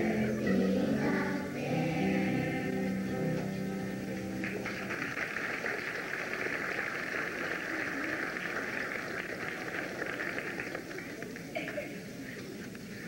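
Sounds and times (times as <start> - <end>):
children's choir singing: 0.0 - 3.6
audience applause: 4.4 - 12.0.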